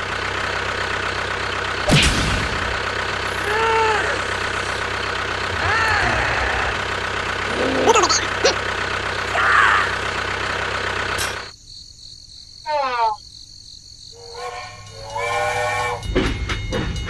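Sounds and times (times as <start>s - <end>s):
engine running: 0.0s - 11.5s
steam train whistle: 14.2s - 16.3s
train clattering rhythmically: 14.2s - 17.0s.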